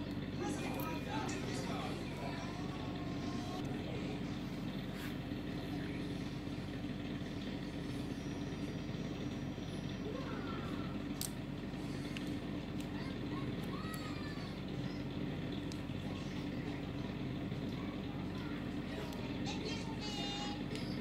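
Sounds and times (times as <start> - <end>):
low engine rumble: 0.0 - 21.0
light clicks of engine parts: 11.1 - 14.4, 15.0 - 16.1, 20.6 - 21.0.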